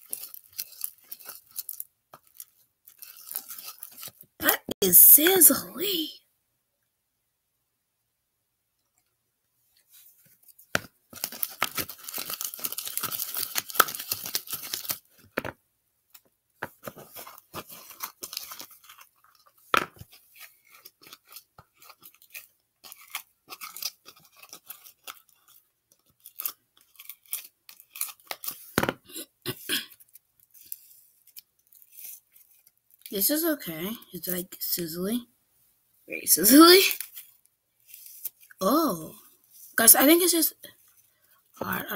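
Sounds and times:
slime crackling and popping: 11.1s - 15.0s.

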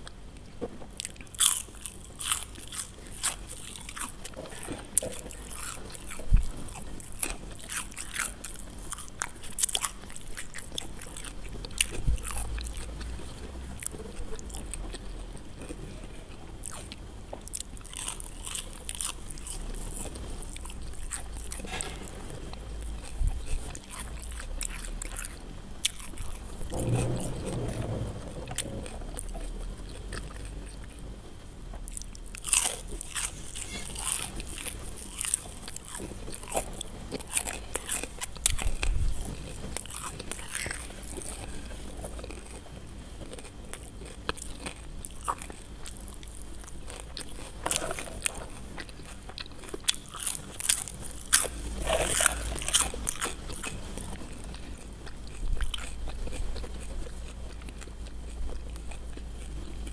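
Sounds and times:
crunching crispy fries: 0.0s - 59.9s.

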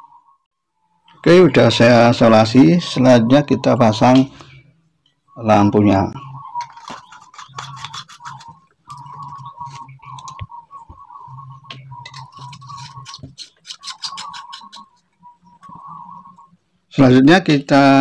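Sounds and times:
hum: 3.2s - 17.0s.

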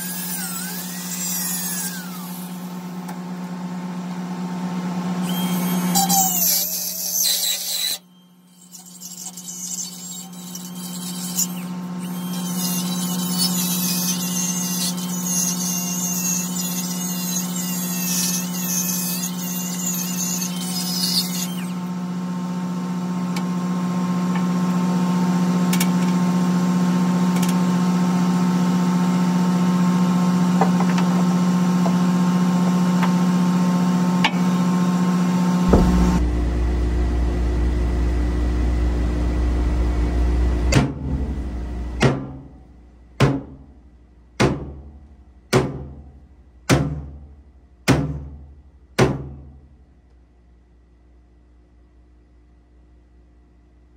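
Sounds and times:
die grinder grinding steel: 0.0s - 3.1s, 5.2s - 21.9s, 35.7s - 42.0s
steady engine hum: 0.0s - 6.7s, 30.4s - 43.0s.

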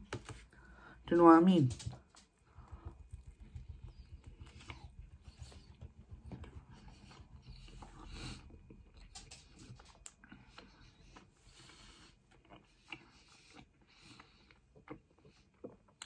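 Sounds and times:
chewing with mouth clicks: 7.1s - 16.0s.

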